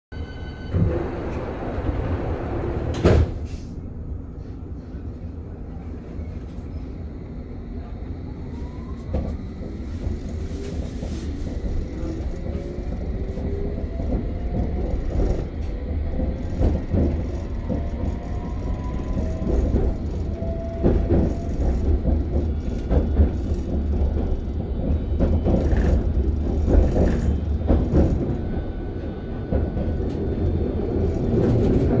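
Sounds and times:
train rumbling: 0:00.1 - 0:32.0
traction motors whining: 0:09.0 - 0:31.4
wheels knocking: 0:13.8 - 0:28.4.

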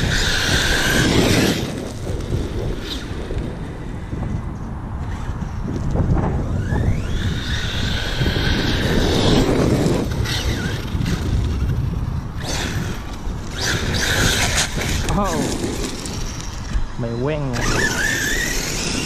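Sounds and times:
electric motor whining: 0:00.0 - 0:04.1, 0:05.0 - 0:19.0
tyres spinning and spraying stones: 0:06.6 - 0:16.7, 0:17.5 - 0:19.0
tyres crunching on gravel: 0:12.6 - 0:16.9.

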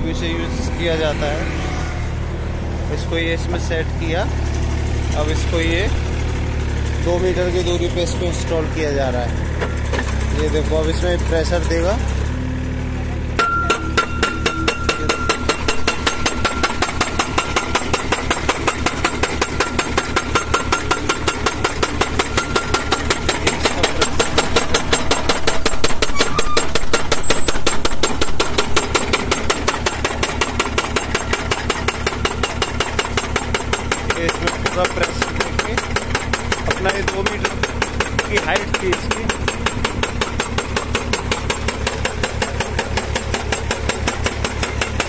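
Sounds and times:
machine engine running: 0:00.0 - 0:45.0.

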